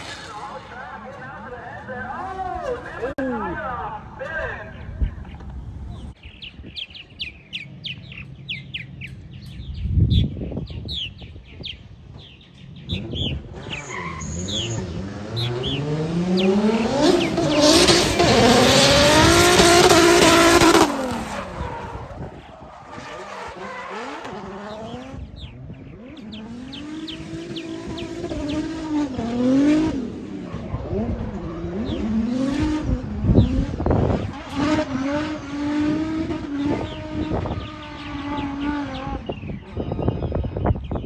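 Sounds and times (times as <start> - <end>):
tires screeching: 0.0 - 4.2, 12.2 - 40.8
birds chirping: 0.0 - 41.0
car engine revving: 12.8 - 39.4.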